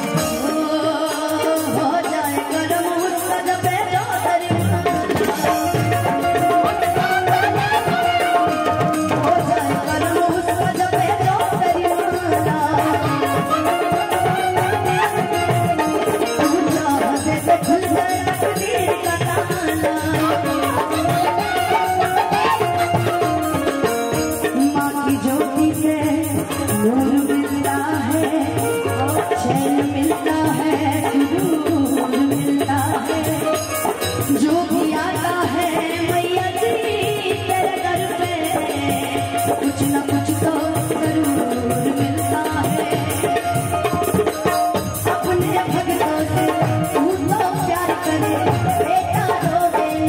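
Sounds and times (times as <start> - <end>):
amplified live band: 0.0 - 50.0
hand-drum rhythm: 0.0 - 50.0
woman singing into a microphone: 0.0 - 50.0.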